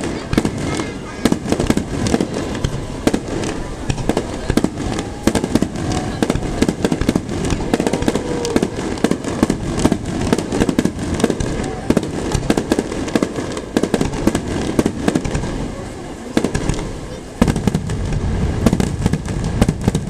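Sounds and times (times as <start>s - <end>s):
fireworks bursting: 0.0s - 20.0s.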